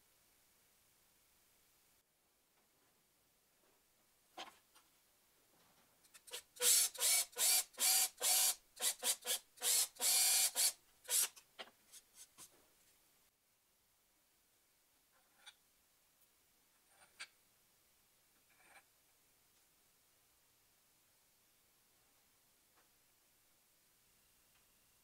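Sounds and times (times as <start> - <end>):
cordless drill boring into plywood: 6.6 - 11.3.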